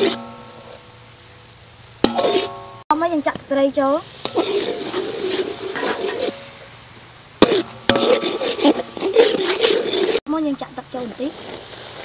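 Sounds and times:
ladle scraping sauce in wok: 0.0 - 0.9, 2.0 - 2.6, 4.0 - 10.2, 11.3 - 12.0
ladle knocking on pan: 2.0 - 2.8.

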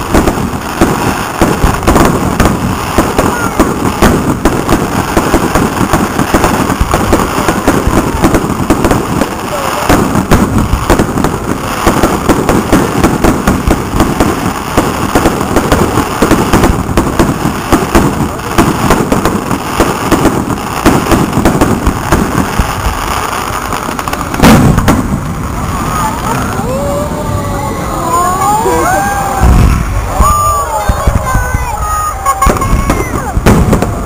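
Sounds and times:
loud firework boom: 0.0 - 27.3, 29.2 - 34.0
fireworks banging and crackling: 0.0 - 34.0.

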